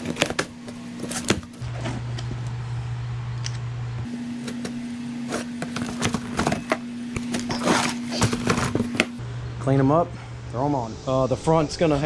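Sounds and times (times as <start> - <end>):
cardboard rustling: 0.0 - 1.9, 4.5 - 9.2
steady low hum: 0.0 - 12.0.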